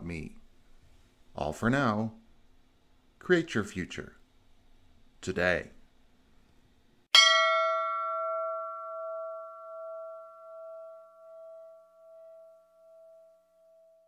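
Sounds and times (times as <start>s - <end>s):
struck bell ringing: 7.2s - 14.0s.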